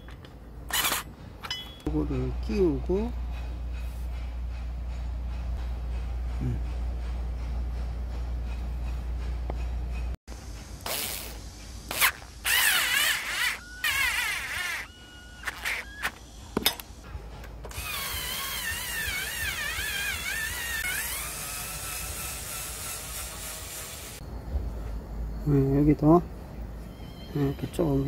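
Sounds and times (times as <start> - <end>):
cordless drill whining: 12.5 - 16.2, 17.7 - 22.4.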